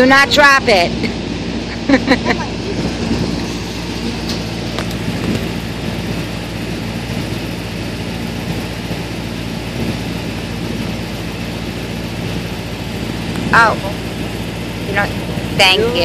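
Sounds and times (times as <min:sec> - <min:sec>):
truck engine idling: 0:00.0 - 0:16.0.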